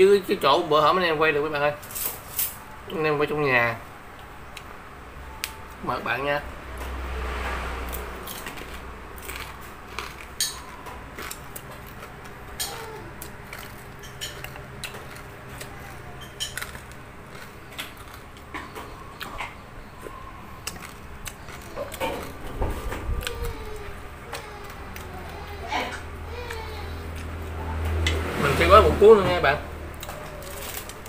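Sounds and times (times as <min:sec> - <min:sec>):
chewing crispy food: 0:07.9 - 0:28.0, 0:29.9 - 0:31.0.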